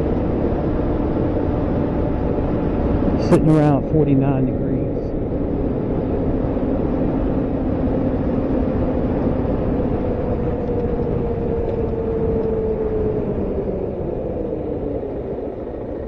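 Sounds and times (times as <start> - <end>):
wind on microphone: 0.0 - 3.8, 4.5 - 16.0
motorcycle engine cruising: 5.0 - 16.0.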